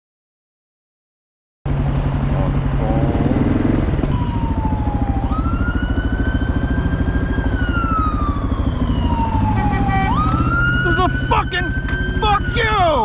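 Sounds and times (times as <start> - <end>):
motorcycle engine pulsing: 1.8 - 13.0
siren wailing: 3.6 - 13.0.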